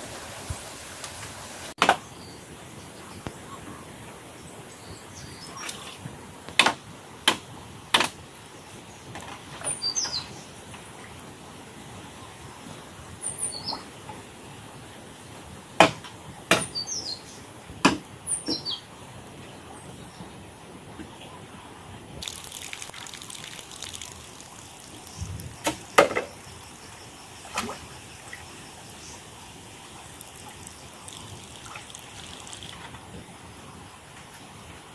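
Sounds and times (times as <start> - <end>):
outdoor background hiss: 0.0 - 34.9
small birds chirping: 22.2 - 29.3.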